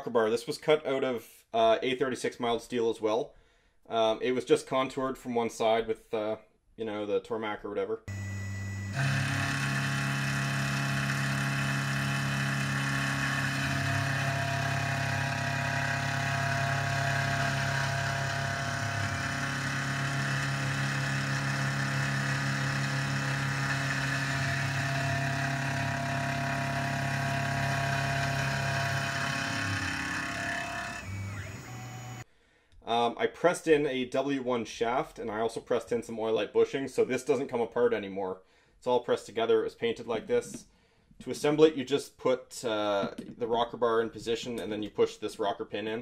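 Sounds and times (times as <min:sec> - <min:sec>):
high machine tones: 0:08.1 - 0:32.2
milling machine hum: 0:08.1 - 0:32.2.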